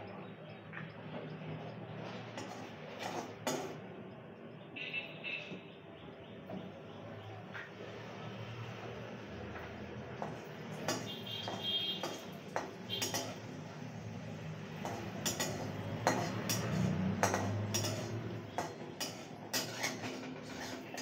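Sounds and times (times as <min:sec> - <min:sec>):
metal spatula scraping a steel pan: 0:02.2 - 0:03.8, 0:10.3 - 0:13.6, 0:14.8 - 0:21.0.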